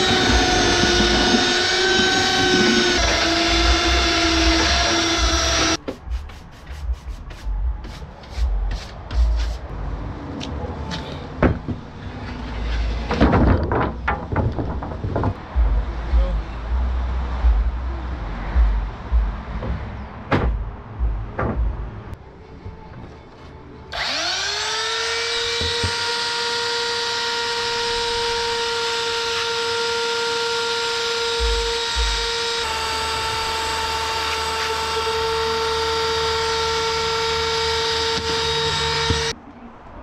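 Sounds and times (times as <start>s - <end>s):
belt sander whining: 0.0s - 5.8s, 23.9s - 39.3s.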